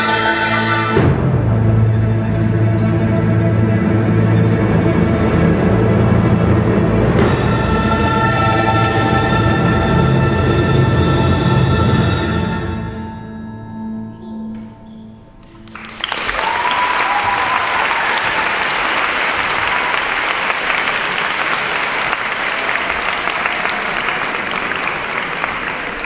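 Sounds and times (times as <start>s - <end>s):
audience applauding: 15.6s - 26.0s
crowd cheering: 15.7s - 26.0s.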